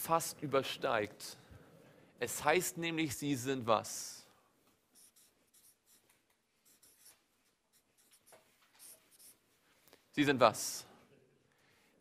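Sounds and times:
marker pen writing on paper: 4.9s - 9.5s.

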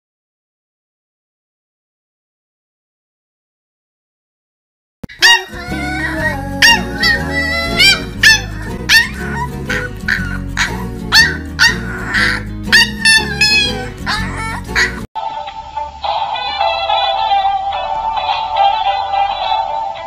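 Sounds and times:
puppy howling and yipping: 5.1s - 15.1s
background music: 5.2s - 20.0s.

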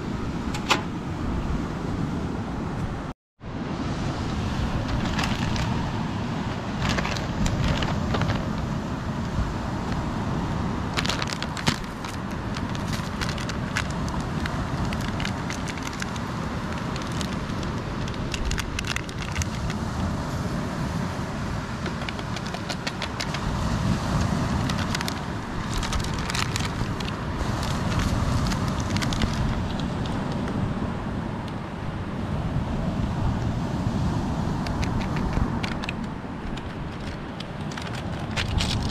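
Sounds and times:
wind noise on microphone: 0.0s - 38.9s
plastic sachets crinkling: 10.9s - 19.8s, 21.8s - 23.4s, 24.6s - 30.2s, 34.8s - 38.9s.

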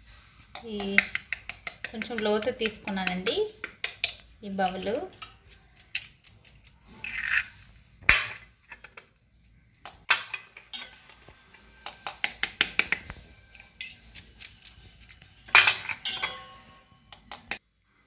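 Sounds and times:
knife tapping eggs open: 0.5s - 4.8s, 11.8s - 13.2s
metal clinks on steel bowl: 13.8s - 16.9s.

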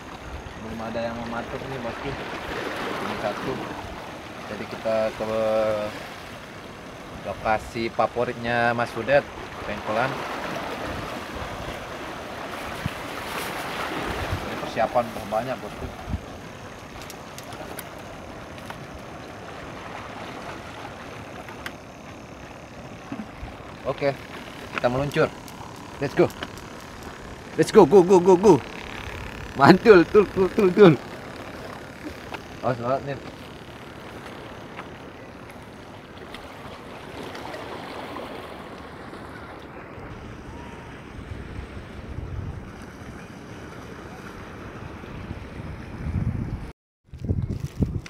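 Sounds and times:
seaside background rush: 0.0s - 46.7s
sea water washing against rocks: 8.5s - 39.3s
wind on microphone: 10.2s - 17.8s, 39.4s - 48.0s.

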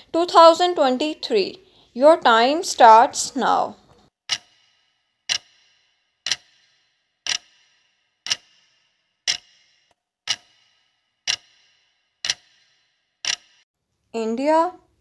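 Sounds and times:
clock ticking: 4.3s - 13.6s.

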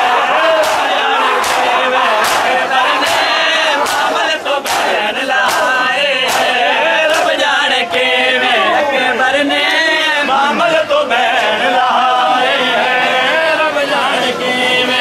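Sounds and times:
men chanting a lament: 0.0s - 15.0s
hands slapping chests: 0.6s - 7.4s.

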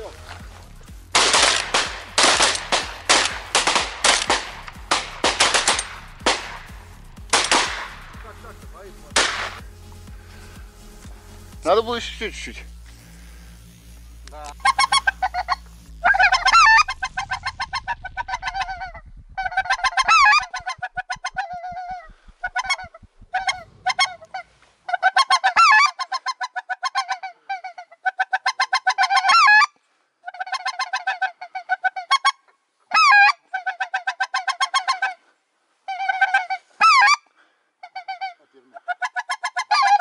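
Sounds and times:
goose honking: 14.2s - 35.2s, 35.9s - 40.0s.

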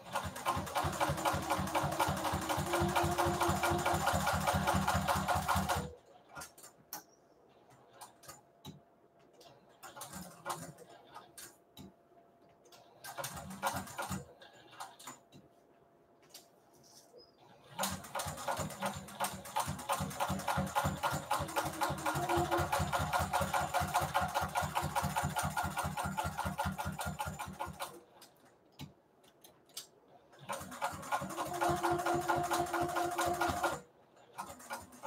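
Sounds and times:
sewing machine stitching: 0.0s - 6.7s, 17.4s - 28.0s, 30.3s - 35.0s.

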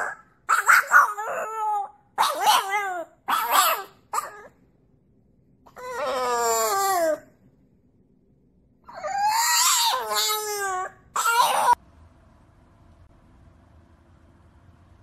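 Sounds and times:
dog howling: 0.0s - 4.5s, 5.7s - 7.3s, 8.9s - 11.8s.

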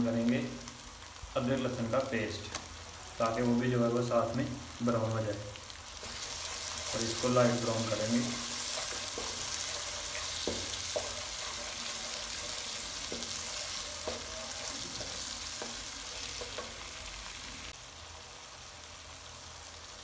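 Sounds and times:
paste sizzling in hot oil: 0.0s - 20.0s
wooden spatula knocking against pan: 8.9s - 11.7s, 12.3s - 16.8s.

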